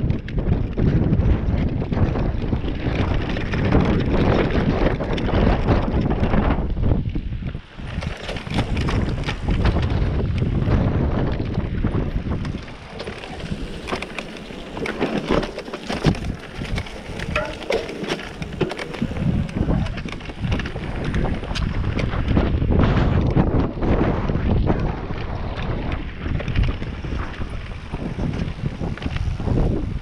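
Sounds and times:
wind buffeting microphone: 0:00.0 - 0:30.0
bike clattering and knocking: 0:11.5 - 0:22.5
tyres crunching over stones: 0:12.3 - 0:22.0.

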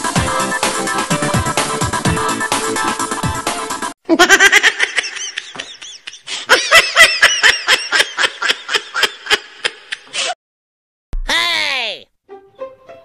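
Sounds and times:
high-pitched laughter: 0:04.1 - 0:10.3.

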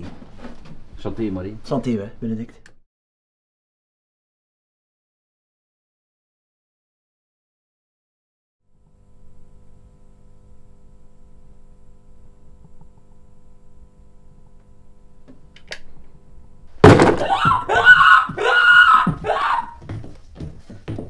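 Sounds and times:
loud crash: 0:16.8 - 0:17.3
man crying out in pain: 0:17.2 - 0:19.8.

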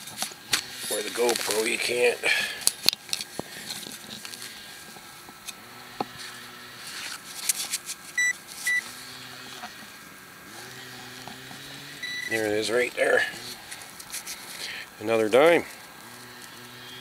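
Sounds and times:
hand digger scraping soil: 0:00.0 - 0:17.0
small gas engine humming: 0:00.0 - 0:17.0
short electronic beeps: 0:08.2 - 0:08.8, 0:12.0 - 0:12.4.

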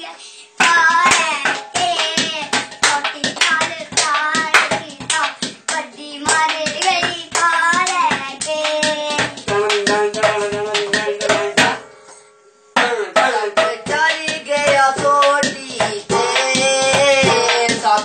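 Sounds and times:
person singing: 0:00.0 - 0:11.9, 0:12.8 - 0:18.0
hand drumming on metal pot: 0:06.3 - 0:11.8, 0:12.8 - 0:18.0.

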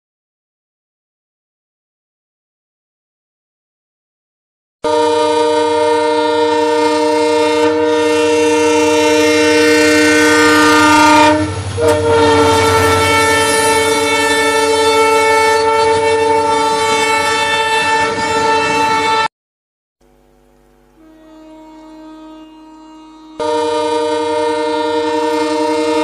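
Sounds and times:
multi-note train horn blasts: 0:04.8 - 0:19.3, 0:20.9 - 0:26.0.

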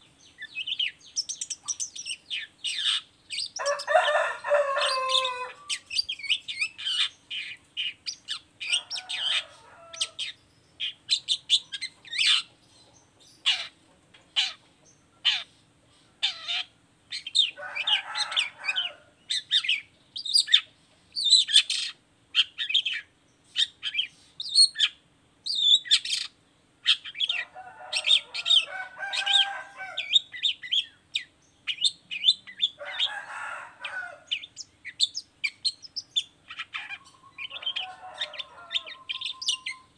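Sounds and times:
harsh raspy bird chattering: 0:00.6 - 0:03.6, 0:05.2 - 0:12.6, 0:13.3 - 0:15.5, 0:16.2 - 0:17.6, 0:34.3 - 0:39.9.

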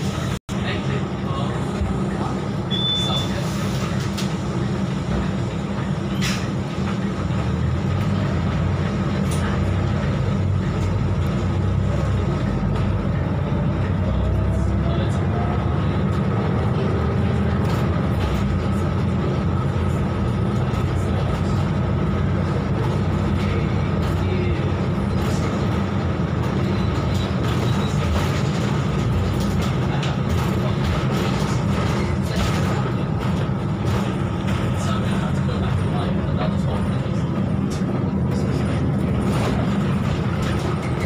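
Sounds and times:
bus diesel engine: 0:00.0 - 0:41.0
road rumble: 0:00.0 - 0:41.0.

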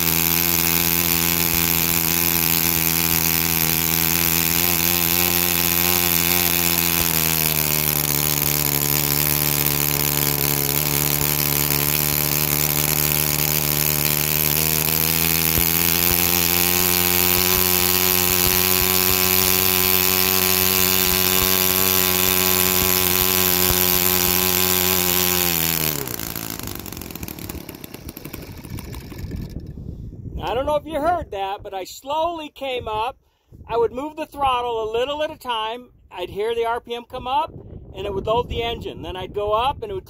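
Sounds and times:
model airplane engine running: 0:00.0 - 0:30.7
propeller winding down: 0:00.0 - 0:30.9.

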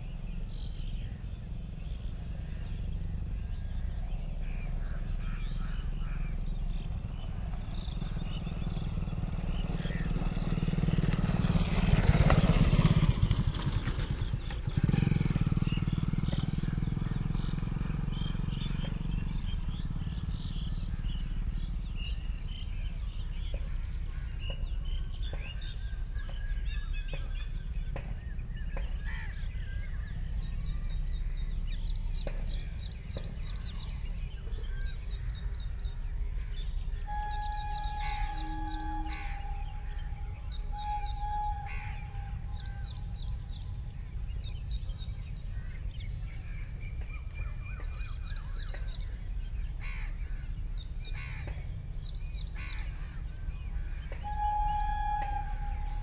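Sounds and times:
passing vehicle noise: 0:00.0 - 0:26.6, 0:27.5 - 0:56.0
small birds chirping: 0:00.0 - 0:56.0
low rumble: 0:29.4 - 0:56.0.

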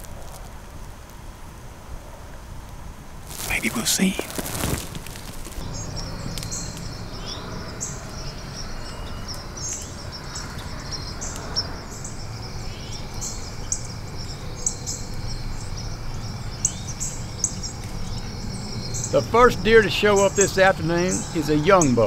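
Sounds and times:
insects trilling: 0:03.2 - 0:22.0
bird chirps: 0:05.4 - 0:22.0.

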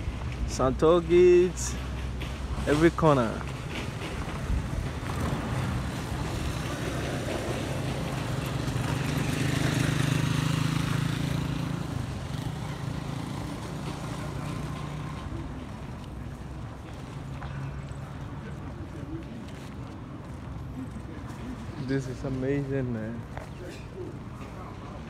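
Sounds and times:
small motorcycle engine passing: 0:04.9 - 0:15.6.

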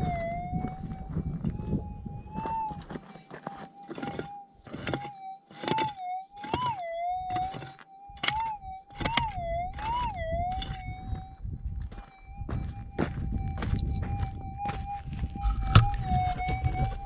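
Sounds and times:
pick chopping stony ground: 0:02.7 - 0:10.9, 0:15.4 - 0:17.0.

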